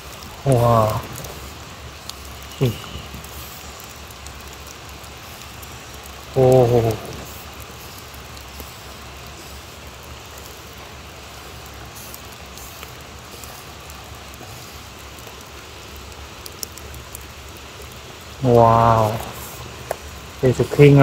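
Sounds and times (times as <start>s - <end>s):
rain on wet ground: 0.0s - 21.0s
faint clicks: 1.0s - 9.4s, 11.6s - 18.0s.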